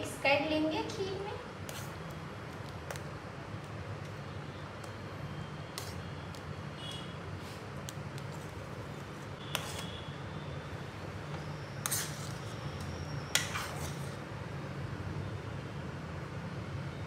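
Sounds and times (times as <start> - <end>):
spoon stirring thick pudding: 1.6 - 5.0, 5.7 - 10.0, 10.8 - 14.3.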